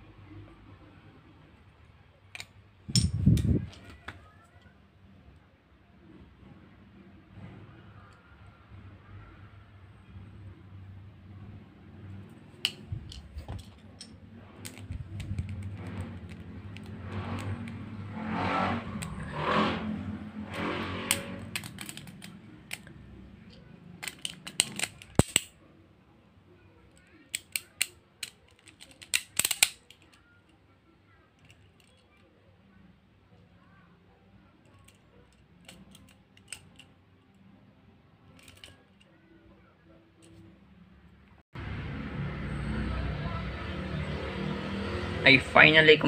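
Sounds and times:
plastic parts snapping clicks: 21.1s - 22.9s, 24.0s - 25.5s, 27.3s - 30.2s, 35.6s - 36.9s, 38.4s - 38.8s.

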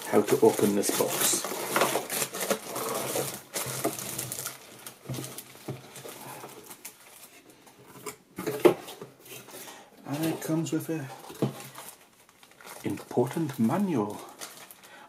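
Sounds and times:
plastic bag crinkling: 0.0s - 7.5s, 10.0s - 15.0s
cardboard scraping: 0.1s - 6.5s.

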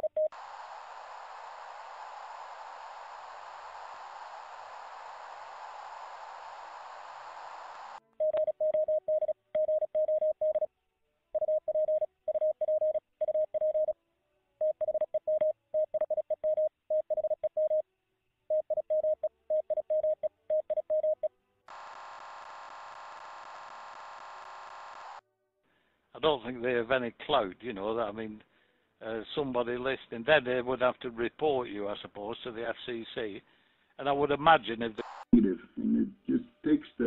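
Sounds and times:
radio receiver hiss: 0.4s - 8.0s, 21.7s - 25.2s, 34.6s - 35.4s.

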